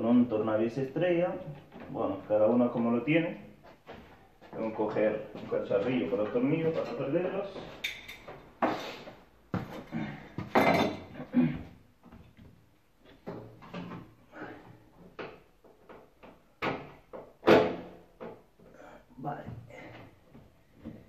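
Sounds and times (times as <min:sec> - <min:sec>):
objects knocking on washing machine: 0:10.4 - 0:11.1, 0:15.1 - 0:18.4.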